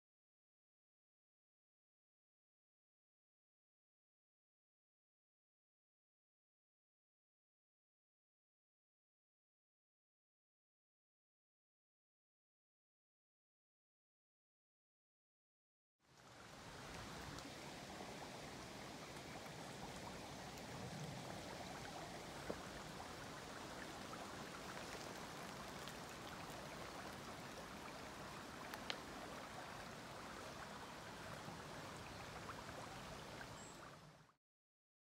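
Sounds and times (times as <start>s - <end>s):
river water rushing: 16.1s - 33.9s.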